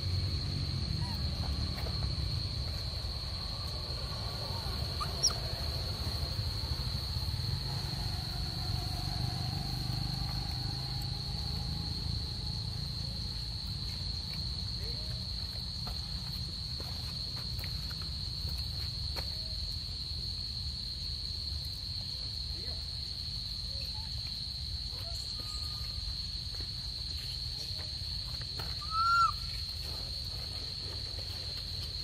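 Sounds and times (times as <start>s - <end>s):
low background rumble: 0.0s - 14.7s
high-pitched insect drone: 4.2s - 13.4s.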